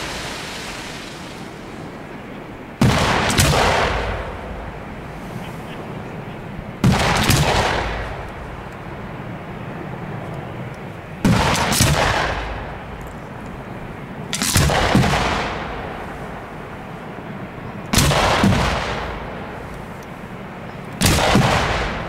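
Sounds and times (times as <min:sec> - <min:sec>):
rumbling echo: 0:00.0 - 0:22.0
firework shells bursting: 0:10.7 - 0:13.6.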